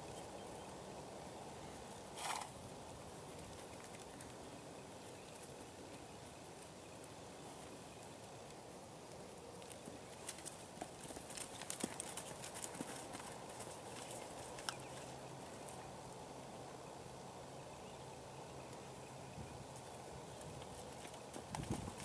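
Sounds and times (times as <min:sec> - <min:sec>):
hoofbeats on soft dirt: 0:10.1 - 0:15.1, 0:19.8 - 0:22.0.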